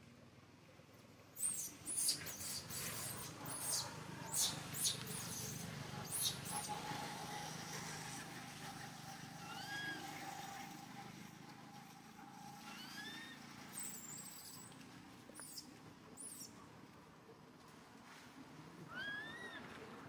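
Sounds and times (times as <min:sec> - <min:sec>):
baby monkey squealing: 0:01.4 - 0:06.7, 0:09.4 - 0:10.1, 0:12.7 - 0:14.6, 0:16.2 - 0:16.5, 0:18.9 - 0:19.6.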